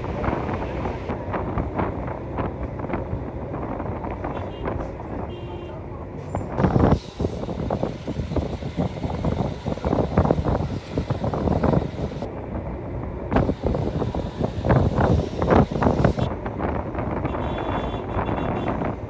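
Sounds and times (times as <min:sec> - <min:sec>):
road traffic: 0:00.0 - 0:19.0
wind buffeting microphone: 0:06.4 - 0:12.6, 0:13.3 - 0:19.0.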